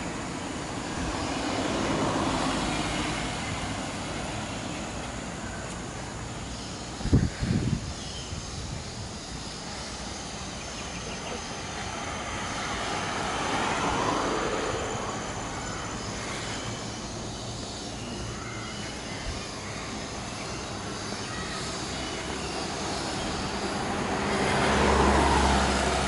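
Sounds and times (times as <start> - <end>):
motor vehicle passing: 0.0 - 6.0, 10.4 - 17.9, 21.9 - 26.0
road ambience: 0.0 - 26.0.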